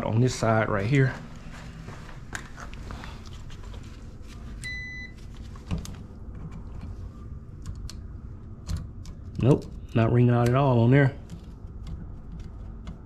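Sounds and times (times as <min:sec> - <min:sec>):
short high-pitched meter beep: 0:04.6 - 0:05.2.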